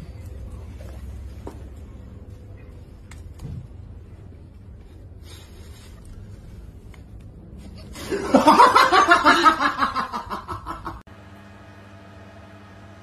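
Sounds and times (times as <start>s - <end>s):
person laughing loudly: 8.0s - 11.0s.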